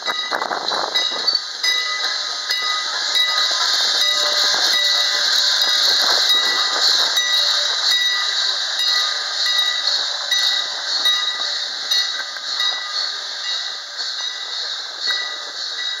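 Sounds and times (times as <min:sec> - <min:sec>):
steam locomotive hissing: 0:00.0 - 0:16.0.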